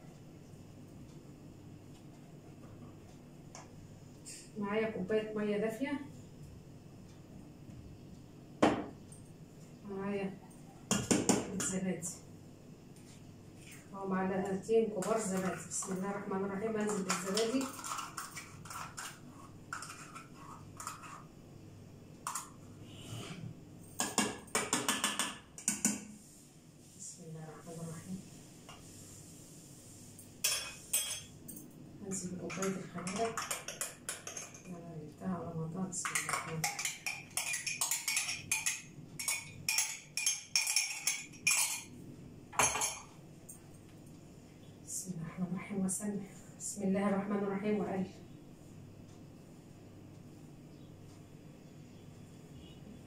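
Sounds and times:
spoon scraping and tapping a bowl: 16.8s - 21.3s, 24.0s - 26.2s, 30.4s - 34.7s, 36.0s - 41.9s
metal cup knock: 24.0s - 26.0s
metal cup clinking on bowl: 30.4s - 31.6s.

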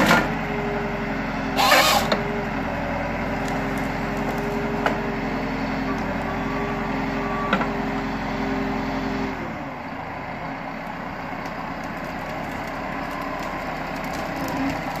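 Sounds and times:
tractor diesel engine: 0.0s - 15.0s
hydraulic whine: 1.4s - 10.0s.

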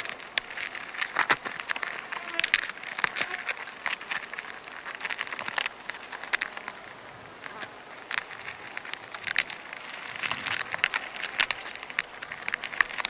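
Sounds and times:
crackling and rustling paper: 0.0s - 13.0s
small sharp ticks: 0.0s - 13.0s.

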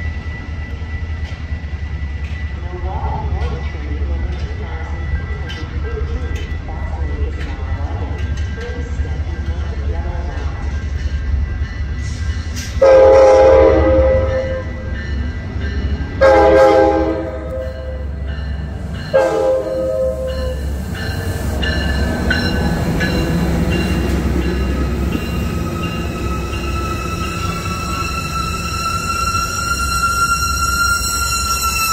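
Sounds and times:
train rumbling by: 0.0s - 31.9s
train air horn blasts: 12.8s - 14.7s, 16.2s - 18.0s, 19.1s - 20.5s.

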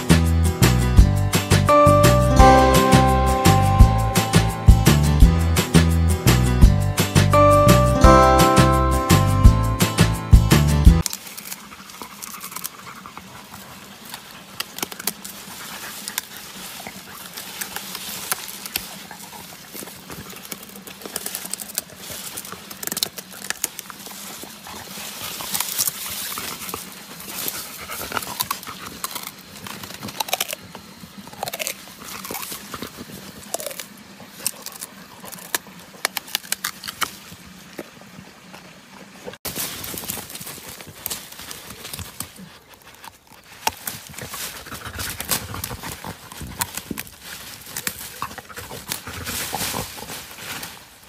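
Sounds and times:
dry leaves rustling: 11.0s - 37.7s, 39.4s - 51.0s
dog crunching sugarcane: 11.0s - 51.0s.

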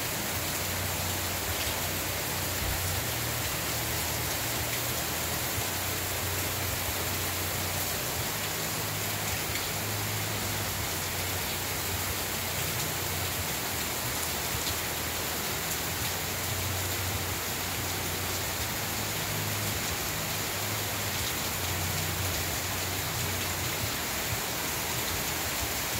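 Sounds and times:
heavy rain pouring: 0.0s - 25.9s.

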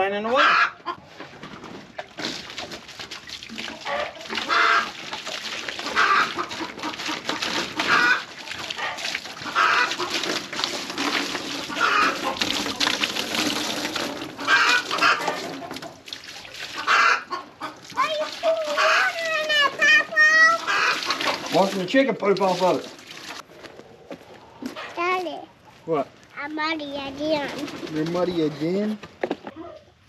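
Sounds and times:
chickens clucking: 0.3s - 1.8s, 3.6s - 5.1s, 5.7s - 13.0s, 14.0s - 16.1s, 16.7s - 21.7s
water splashing and pattering: 0.9s - 23.8s, 24.6s - 28.8s.

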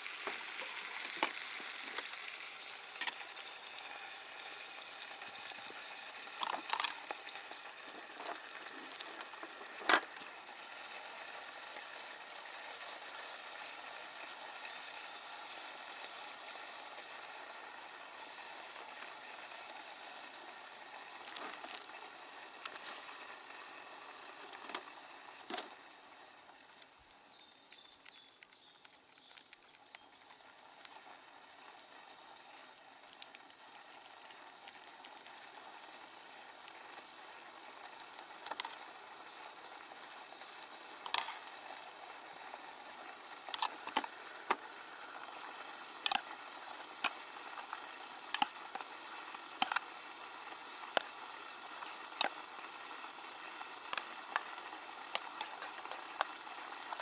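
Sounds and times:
gas stove hissing: 0.0s - 6.4s.

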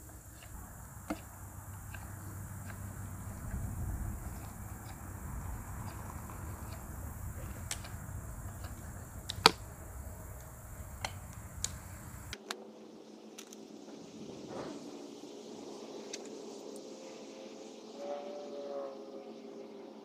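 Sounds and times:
steady low rumble: 0.0s - 12.4s.

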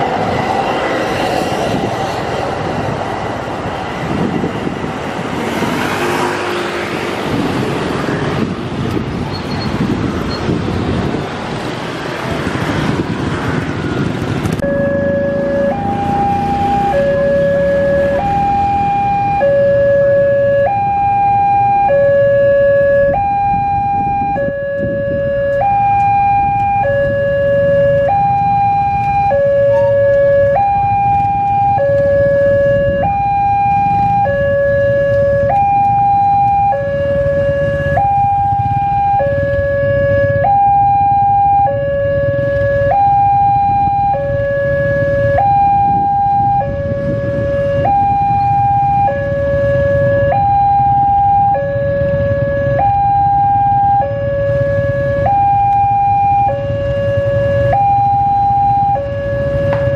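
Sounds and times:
two-tone crossing alarm: 14.6s - 59.9s.

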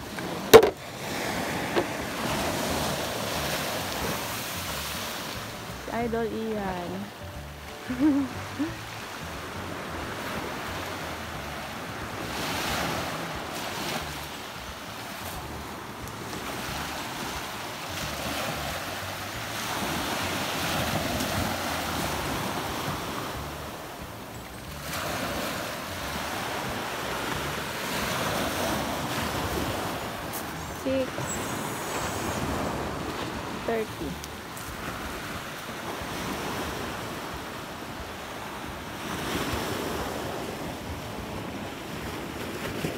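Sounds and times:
waves washing over pebbles: 0.0s - 7.1s, 8.4s - 42.9s
wind rumbling on microphone: 0.0s - 42.9s.

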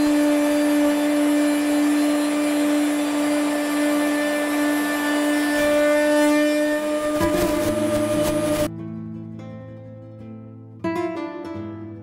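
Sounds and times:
dust extractor hiss: 0.0s - 8.7s
router spindle whine: 0.0s - 8.7s.

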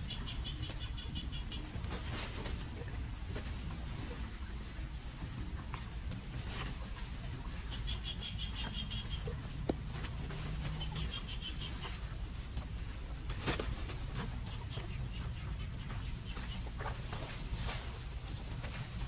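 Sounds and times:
bird chirping: 0.0s - 1.8s, 7.6s - 9.5s, 10.6s - 12.0s.

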